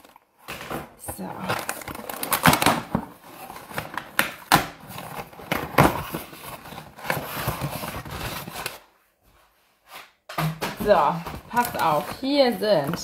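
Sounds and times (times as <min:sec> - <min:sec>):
cardboard flaps rustling: 0:00.0 - 0:08.9, 0:09.9 - 0:13.0
packing tape ripping: 0:01.6 - 0:06.1.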